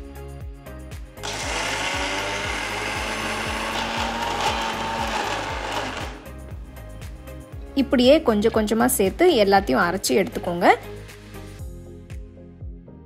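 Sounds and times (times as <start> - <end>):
mixer grinder grinding: 1.2 - 6.4.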